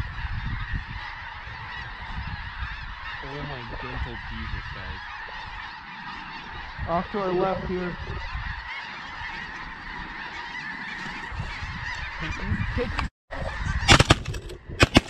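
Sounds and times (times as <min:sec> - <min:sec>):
geese honking: 0:00.0 - 0:15.0
shotgun shots: 0:13.9 - 0:15.0.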